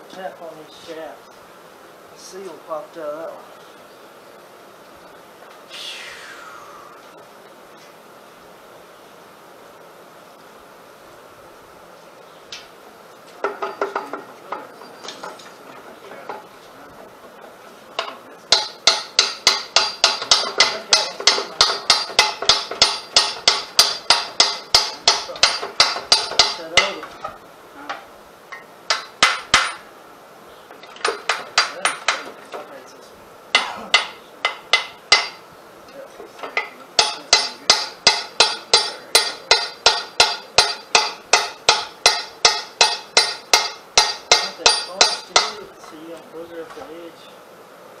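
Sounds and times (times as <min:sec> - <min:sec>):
hammer striking steel axle: 0:18.0 - 0:28.0, 0:28.6 - 0:29.9, 0:33.6 - 0:35.4, 0:36.4 - 0:46.0.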